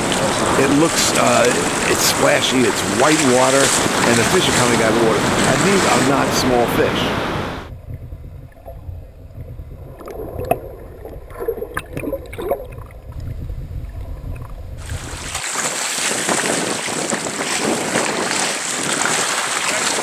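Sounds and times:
muffled underwater rumble: 0.0 - 15.3
sea water splashing: 0.0 - 20.0
wind on microphone: 0.0 - 20.0
underwater clicks and ticks: 7.8 - 14.6.

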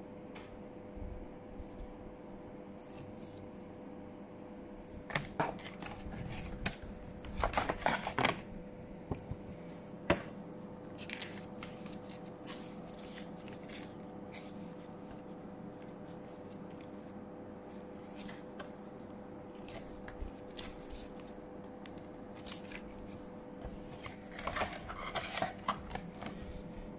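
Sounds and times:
paper rustling and crinkling: 4.9 - 8.5, 10.8 - 26.9.

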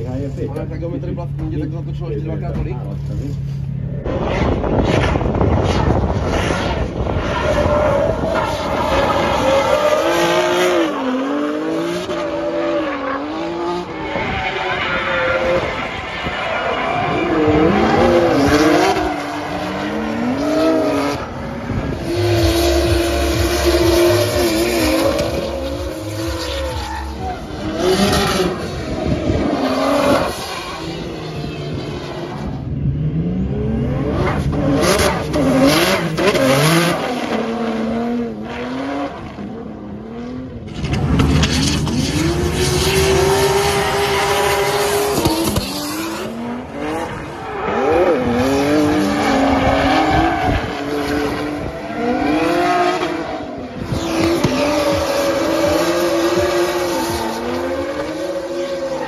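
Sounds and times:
car engine revving: 0.0 - 59.0
tyre squeal: 23.7 - 28.5.

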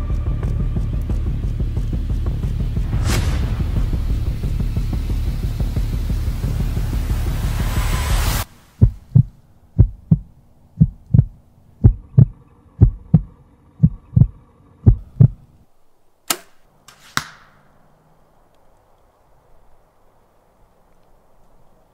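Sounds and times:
arrow striking target: 2.8 - 5.0, 16.3 - 17.8
bow shot crack: 2.8 - 5.2, 16.2 - 18.6
heartbeat thumps: 8.8 - 15.5.

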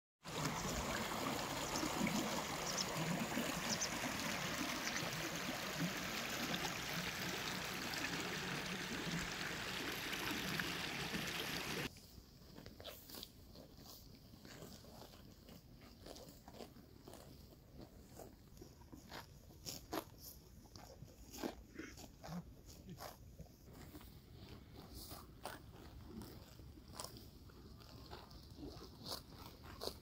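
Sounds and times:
stream running water: 0.2 - 11.9.

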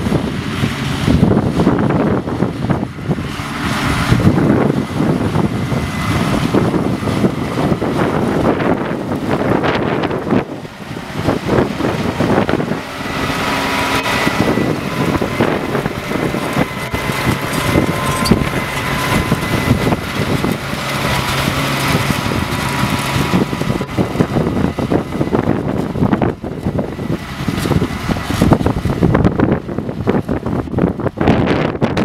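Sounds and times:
dense rumbling: 0.0 - 32.0
tractor engine under load: 0.0 - 32.0.

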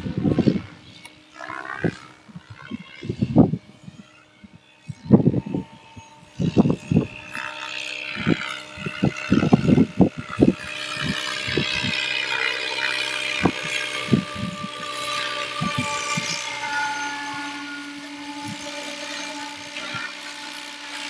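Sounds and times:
model helicopter rotor whine: 0.0 - 21.0.

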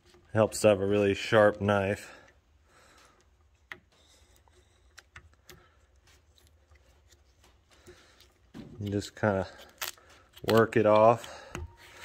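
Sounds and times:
faint clicks and taps: 2.2 - 9.3.

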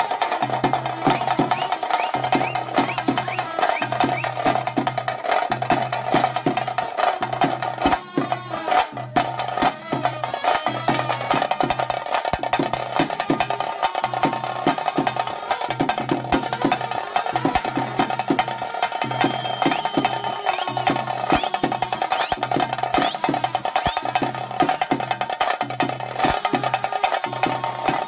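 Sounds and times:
fast dense drumming: 0.0 - 28.0.

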